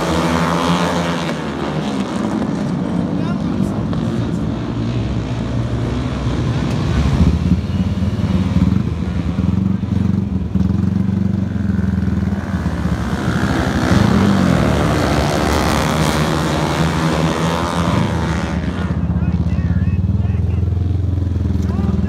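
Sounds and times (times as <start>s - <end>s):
racing motorcycles running hard: 0.0s - 22.0s.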